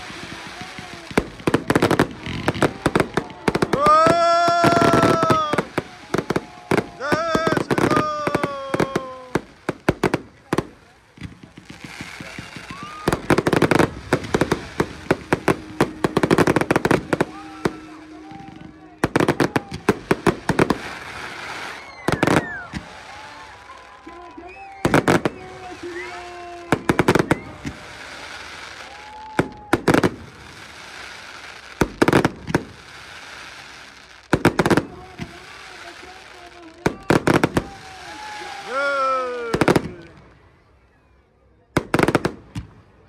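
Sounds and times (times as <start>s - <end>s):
firecrackers popping: 0.0s - 40.4s, 41.8s - 43.0s.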